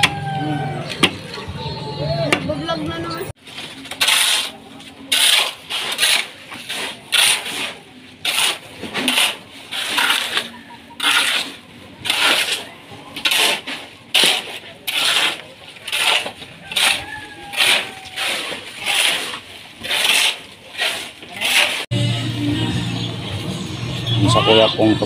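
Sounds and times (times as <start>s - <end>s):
shovel scraping wet concrete: 3.4s - 21.9s.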